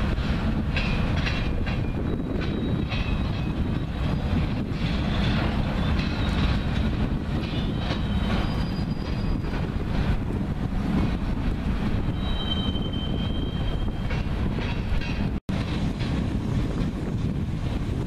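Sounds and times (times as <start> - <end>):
train cars rumbling: 0.0 - 18.0
train wheels squealing: 0.8 - 4.2, 4.8 - 9.8, 12.0 - 14.9.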